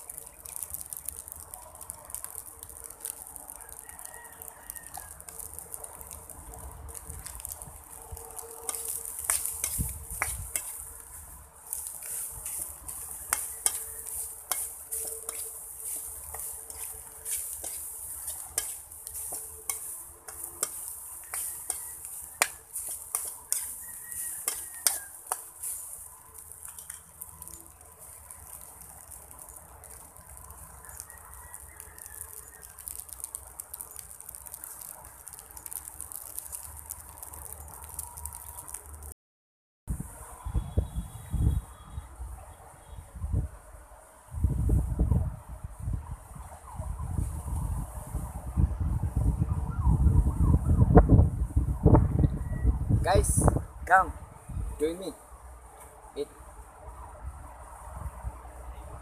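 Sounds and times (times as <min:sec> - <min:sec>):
rice sizzling in a pan: 0:00.0 - 0:39.1
metal utensil scraping a pan: 0:08.6 - 0:10.9, 0:11.7 - 0:26.0.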